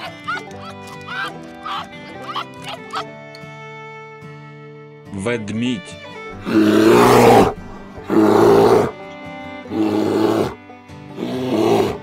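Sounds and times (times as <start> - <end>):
soft background music: 0.0 - 12.0
bear roaring: 6.3 - 9.0, 9.7 - 10.6, 11.2 - 12.0.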